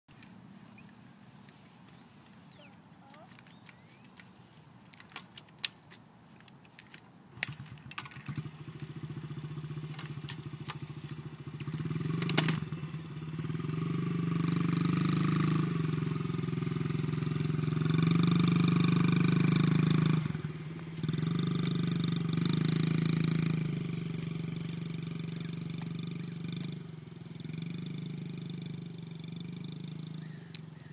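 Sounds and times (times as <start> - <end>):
engine clicks and knocks: 6.8 - 9.0
dirt bike engine running: 7.3 - 30.9.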